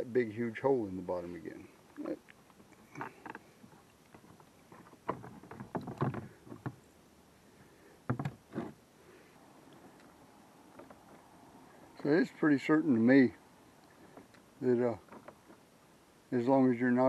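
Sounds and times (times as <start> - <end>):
plastic knocking and clattering: 4.2 - 6.8, 8.1 - 8.4.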